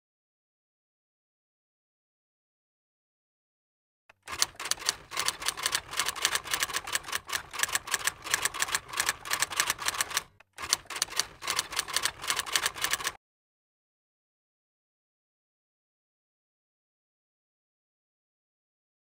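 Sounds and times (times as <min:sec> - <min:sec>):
rapid keystroke clicks: 0:04.3 - 0:13.2.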